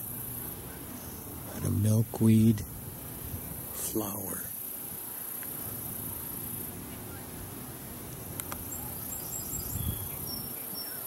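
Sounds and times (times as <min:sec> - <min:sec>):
high-pitched insect trill: 0:08.6 - 0:11.0.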